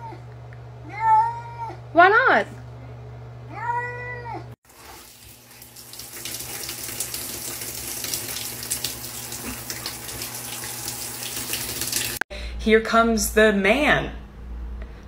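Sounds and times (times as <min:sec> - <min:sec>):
water running into bathtub: 0:04.6 - 0:12.2.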